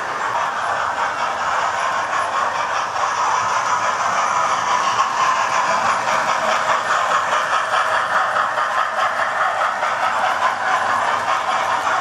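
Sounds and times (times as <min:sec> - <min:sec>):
model train whirring rattle: 0:00.0 - 0:12.0
wheels clicking on rail: 0:00.0 - 0:12.0.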